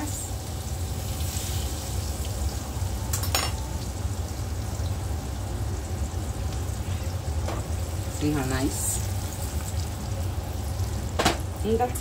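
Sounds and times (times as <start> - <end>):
dough sizzling in hot oil: 0.0 - 12.0.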